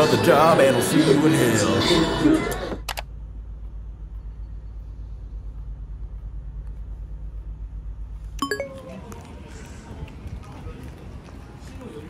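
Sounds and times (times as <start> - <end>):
road rumble inside car: 2.4 - 8.4
short bright chime: 8.4 - 9.0.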